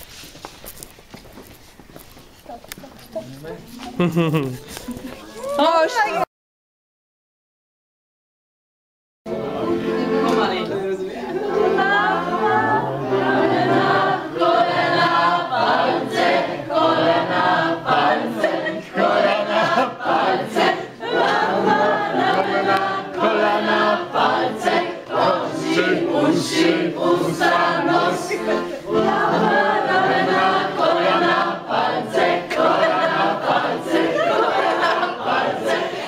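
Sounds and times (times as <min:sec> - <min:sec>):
group of people singing: 0:09.3 - 0:36.0.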